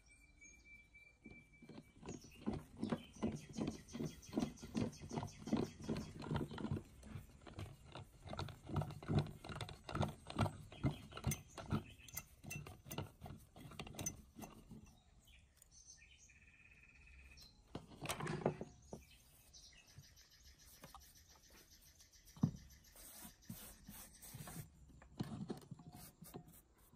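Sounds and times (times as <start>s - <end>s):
rusted metal grating and knocking: 1.7s - 14.9s.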